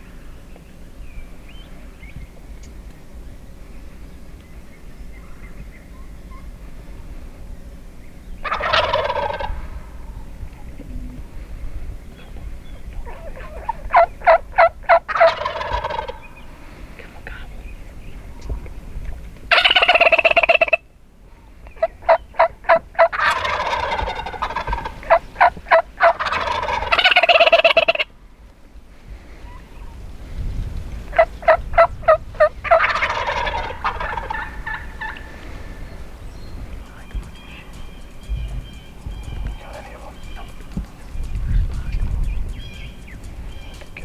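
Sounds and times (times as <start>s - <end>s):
quick turkey yelps: 8.4s - 9.6s, 13.0s - 16.2s, 19.5s - 20.8s, 21.8s - 28.1s, 31.1s - 35.3s
turkeys gobbling: 8.4s - 10.9s, 12.2s - 16.5s, 19.1s - 20.9s, 21.6s - 28.1s, 31.0s - 44.0s.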